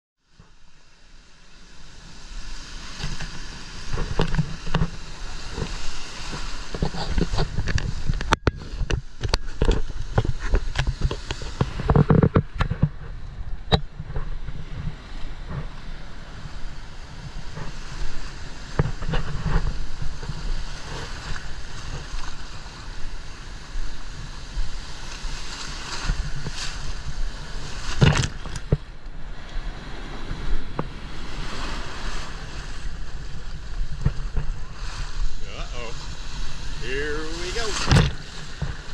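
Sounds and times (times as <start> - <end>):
wind rumbling on microphone: 0.2 - 38.9
surf breaking: 1.7 - 38.9
water splashing camera: 2.9 - 15.8, 25.0 - 29.0, 30.5 - 38.9.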